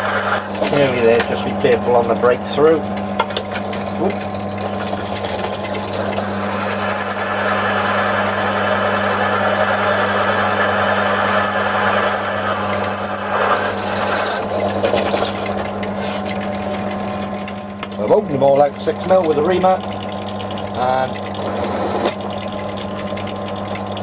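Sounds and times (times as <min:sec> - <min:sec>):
drill bit cutting metal: 0:00.0 - 0:01.2, 0:04.6 - 0:15.4, 0:21.4 - 0:22.2
drill press motor hum: 0:00.0 - 0:24.0.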